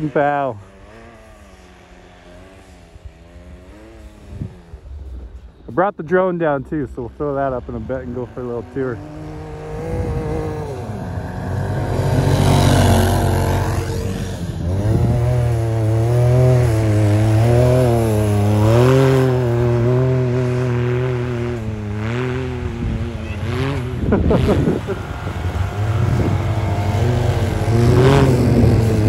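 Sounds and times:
engine revving: 0.0 - 29.0
rush of snow noise: 22.6 - 29.0.

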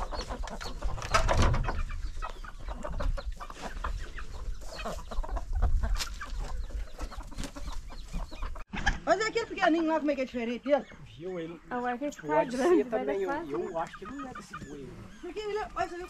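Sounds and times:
chickens clucking: 0.0 - 16.0.

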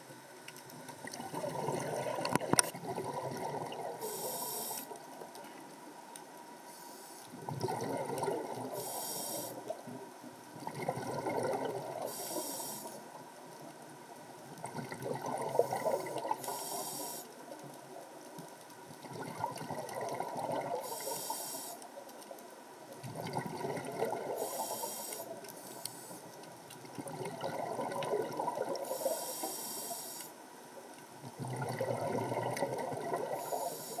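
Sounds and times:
exhaled air bubbling: 0.9 - 5.3, 7.3 - 9.9, 10.5 - 13.1, 14.5 - 17.3, 18.8 - 21.6, 23.0 - 30.1, 31.2 - 34.0
regulator inhale hiss: 4.0 - 5.0, 6.6 - 7.4, 8.7 - 9.7, 12.0 - 13.1, 15.6 - 17.4, 20.8 - 22.0, 24.3 - 26.4, 28.8 - 30.4, 33.3 - 34.0.

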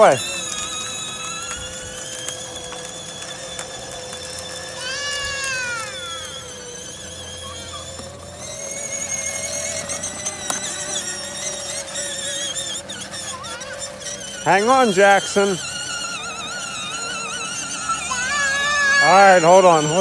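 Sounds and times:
electric motor whining: 0.0 - 20.0
high falling squeal: 4.5 - 20.0.

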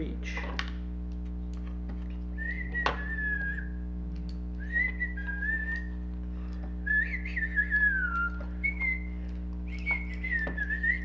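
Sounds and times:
steady low hum: 0.0 - 11.0
person whistling: 2.4 - 3.8, 4.6 - 6.0, 6.8 - 11.0.

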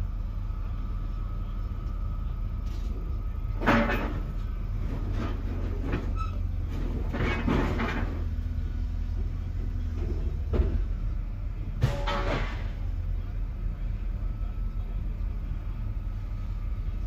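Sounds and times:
low diesel engine rumble: 0.0 - 17.0
scrap steel clanking: 3.6 - 8.3, 11.8 - 12.9.

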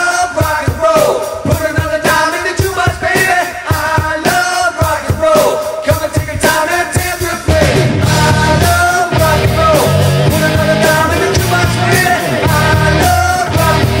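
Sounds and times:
loud rock band playing: 0.0 - 14.0.

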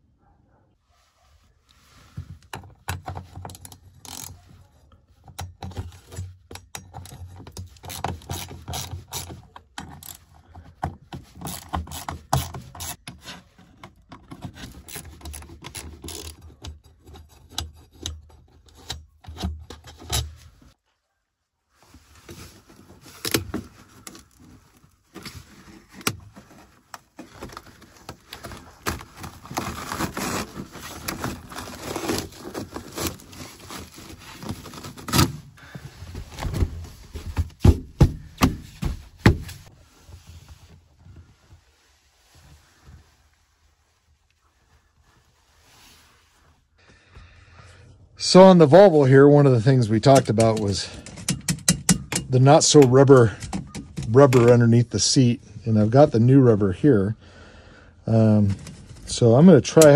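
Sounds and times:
carpet scraping and crinkling: 0.5 - 51.4, 58.1 - 59.9
tool and screws rattling: 2.5 - 4.4, 5.2 - 20.4, 50.0 - 54.6.

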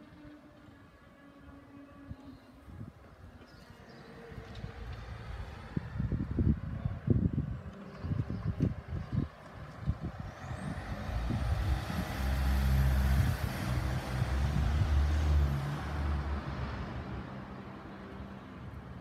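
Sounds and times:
vehicle driving past: 10.1 - 17.8.

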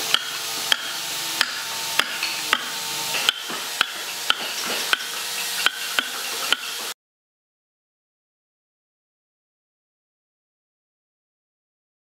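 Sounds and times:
mallet striking chisel into log: 0.1 - 6.9.

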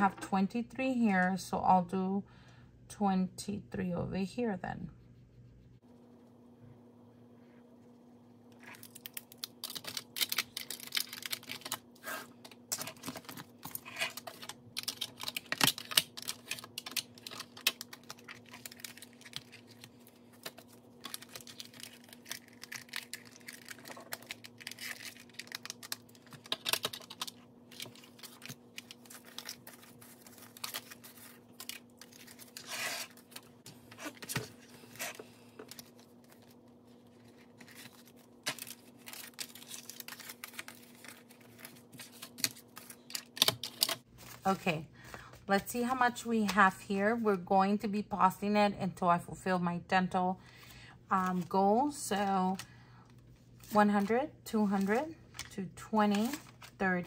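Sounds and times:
plastic envelopes crinkling: 8.6 - 44.5.

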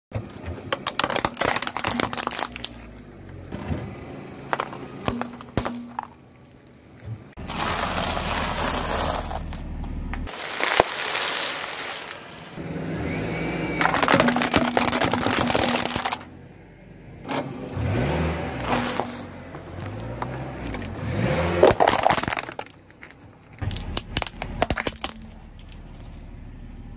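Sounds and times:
plastic cracking under car tyre: 0.7 - 3.1, 4.5 - 6.2, 7.5 - 12.6, 13.8 - 16.3, 21.6 - 26.1
crunching and crackling: 0.7 - 3.4, 4.4 - 12.6, 13.8 - 16.3, 18.6 - 26.3.

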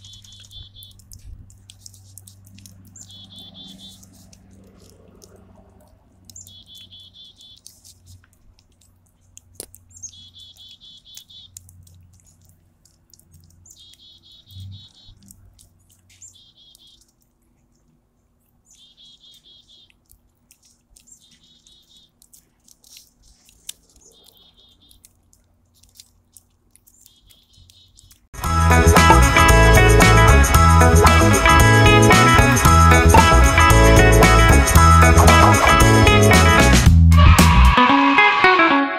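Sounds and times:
small bird trilling: 0.0 - 1.1, 2.8 - 5.0, 6.3 - 7.8, 9.8 - 11.6, 13.4 - 15.3, 16.1 - 17.2, 18.7 - 19.9, 21.0 - 22.2, 23.2 - 25.1, 27.0 - 28.2
cat licking wet clicks: 0.2 - 14.1, 19.8 - 28.3.

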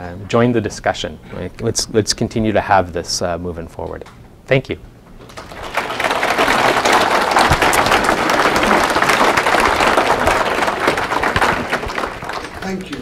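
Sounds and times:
audience applauding: 5.2 - 13.0.

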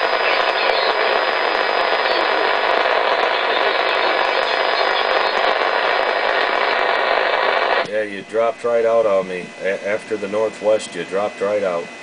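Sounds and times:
faint high whine: 0.0 - 12.0
radio static hiss: 0.0 - 12.0.

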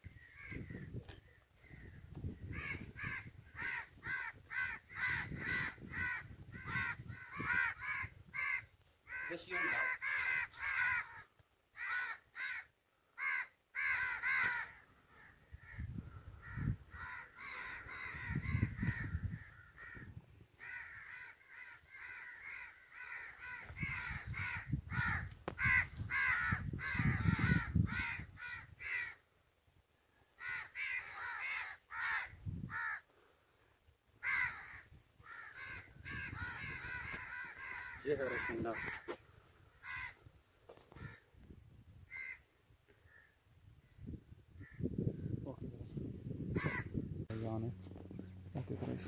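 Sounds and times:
crows cawing: 0.1 - 29.2, 30.4 - 33.3, 34.2 - 41.4, 42.1 - 43.4, 44.6 - 45.1, 46.5 - 47.0
low rumbling noise: 46.8 - 49.0.

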